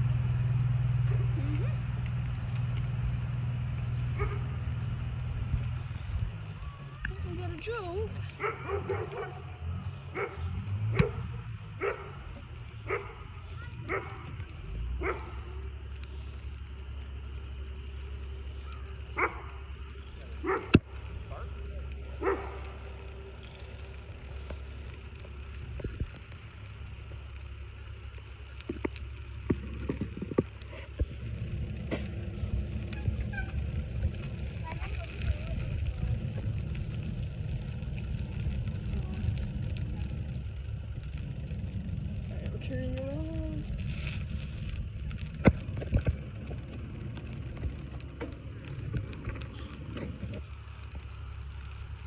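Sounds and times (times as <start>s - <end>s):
bicycle tyres on pavement: 0.0s - 52.0s
wind rumble: 0.0s - 52.0s
dog barking: 4.2s - 4.6s, 8.4s - 14.4s, 15.0s - 15.4s, 19.2s - 19.6s, 20.4s - 20.8s, 22.2s - 22.7s
wind buffeting microphone: 28.7s - 51.3s.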